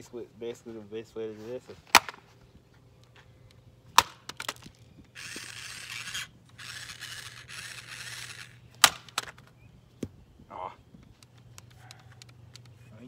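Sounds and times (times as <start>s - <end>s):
plastic toy harsh scraping: 5.2s - 8.6s.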